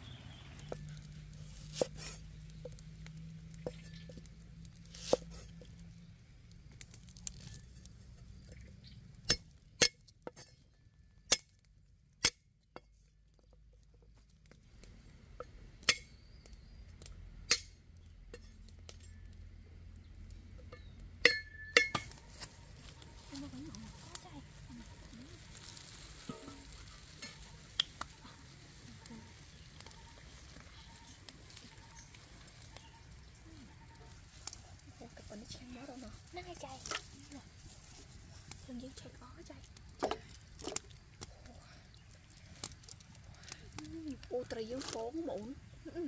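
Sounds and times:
metal cookware clinking: 20.7 - 22.2, 26.2 - 27.6.

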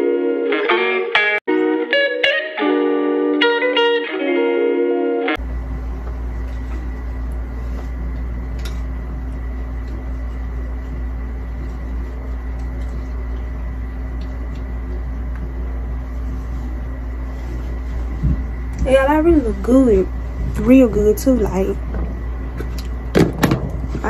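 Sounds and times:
low hum and hiss: 5.1 - 24.0.

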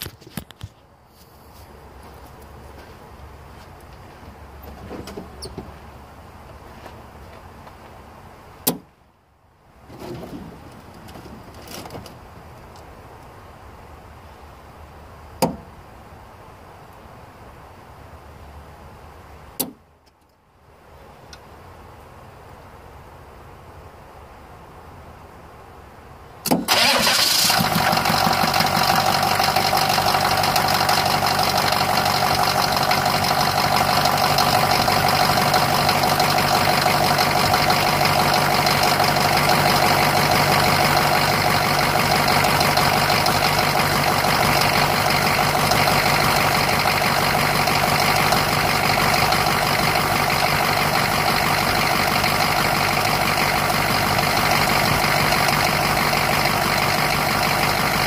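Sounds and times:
diesel engine starting and idling: 26.4 - 58.0.

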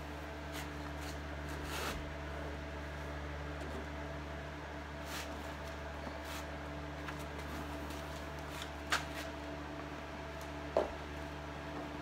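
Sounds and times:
steady low hum: 0.0 - 12.0
vinyl sheet rustling: 5.0 - 9.4.

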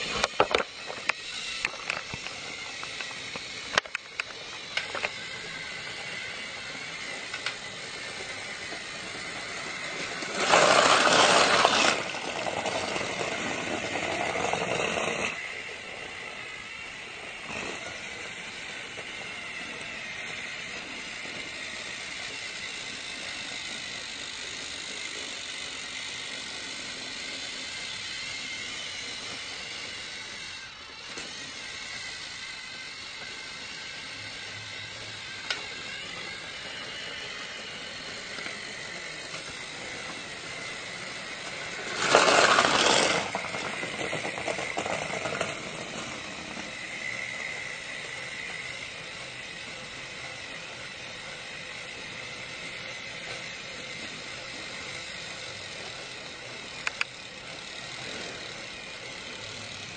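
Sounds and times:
small motor whining: 0.0 - 59.9
loud clatter: 8.8 - 15.4, 41.6 - 46.8.

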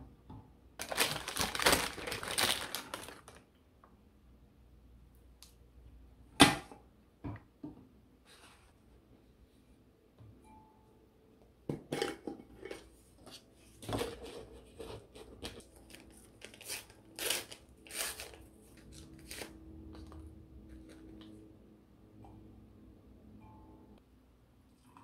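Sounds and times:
paper sachet tearing: 0.8 - 3.4, 15.8 - 19.6.

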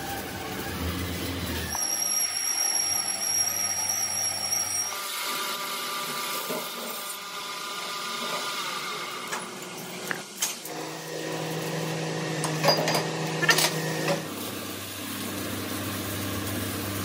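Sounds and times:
machinery high whine: 0.0 - 6.2.

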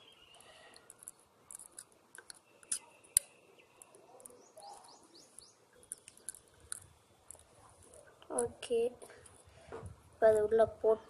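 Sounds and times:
bird chirping: 0.0 - 8.3.

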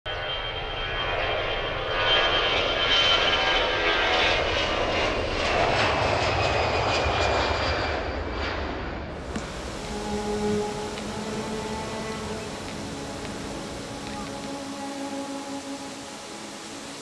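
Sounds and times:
airplane engines running: 0.1 - 17.0.

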